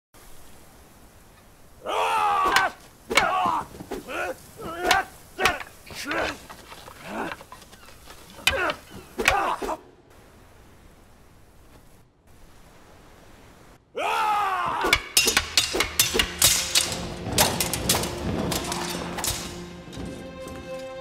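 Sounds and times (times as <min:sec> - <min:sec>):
men shouting and grunting: 0:01.8 - 0:07.5, 0:08.3 - 0:09.9, 0:13.9 - 0:16.4
wooden swords clacking: 0:02.5 - 0:09.8, 0:14.7 - 0:21.0.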